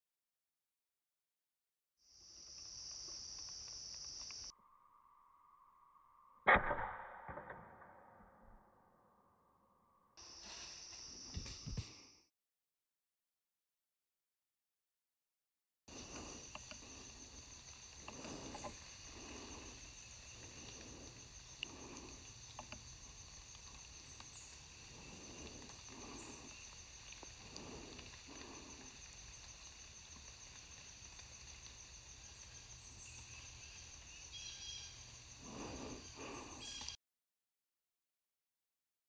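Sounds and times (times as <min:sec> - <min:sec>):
pulsing insect drone: 0:02.1 - 0:06.4, 0:15.9 - 0:37.0
bird chirps: 0:32.3 - 0:37.0.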